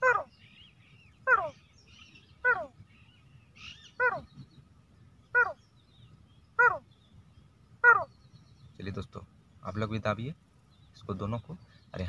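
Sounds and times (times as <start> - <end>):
man imitating bird calls: 0.0 - 0.4, 1.2 - 2.8, 3.6 - 4.4, 7.8 - 8.1.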